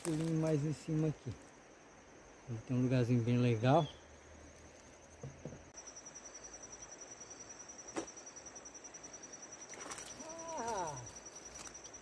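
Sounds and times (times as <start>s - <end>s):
insects chirping: 0.0s - 12.0s.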